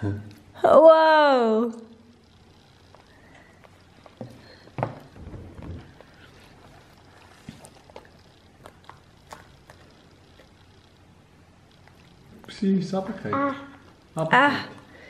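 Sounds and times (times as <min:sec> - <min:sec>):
toddler eating clicks and smacks: 0:02.8 - 0:11.0.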